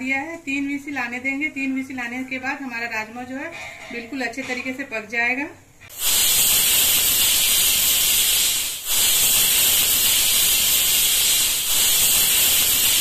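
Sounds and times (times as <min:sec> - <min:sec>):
pressure cooker steam hissing: 0:05.9 - 0:13.0.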